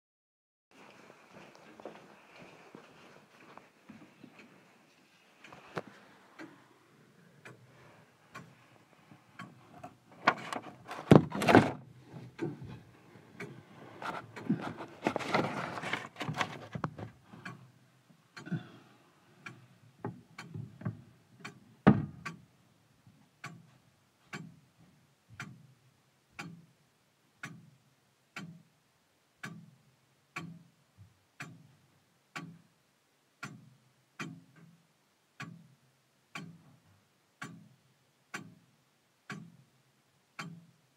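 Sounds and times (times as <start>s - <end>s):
clock ticking: 5.4s - 40.9s
loud knocks and clatter: 10.4s - 11.8s.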